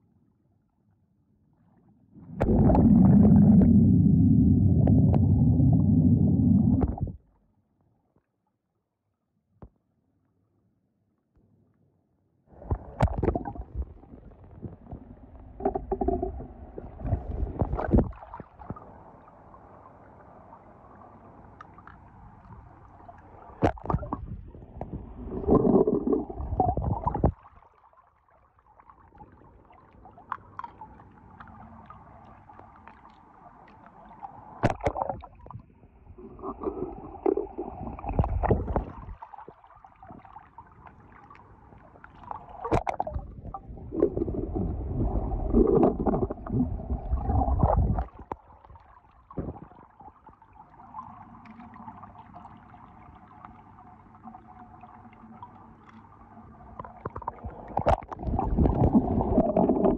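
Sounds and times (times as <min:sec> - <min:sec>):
water sloshing and gurgling: 0:01.4 - 0:07.4, 0:12.5 - 0:59.9.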